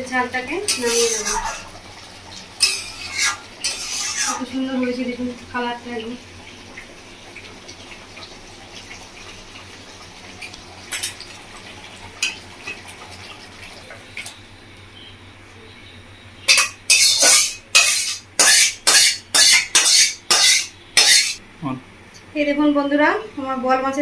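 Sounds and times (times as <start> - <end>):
metal spatula scraping steel pan: 0.7 - 1.7, 2.6 - 4.5, 16.5 - 21.4.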